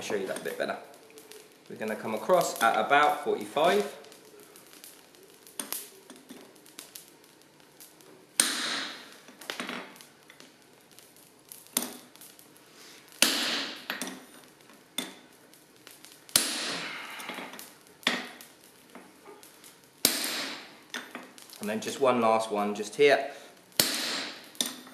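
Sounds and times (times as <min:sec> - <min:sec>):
hammer striking metal on anvil: 0:23.8 - 0:24.4.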